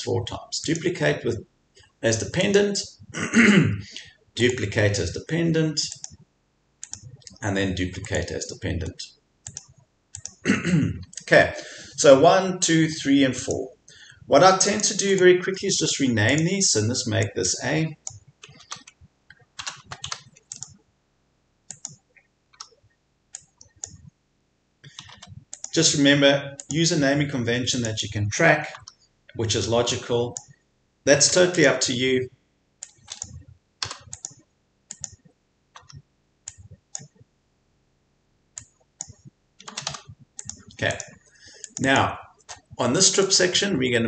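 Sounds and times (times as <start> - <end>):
computer keyboard typing: 6.8 - 10.4, 18.0 - 20.8, 21.7 - 22.0, 22.6 - 22.8, 23.4 - 24.1, 24.8 - 26.0, 32.8 - 37.2, 38.6 - 42.8.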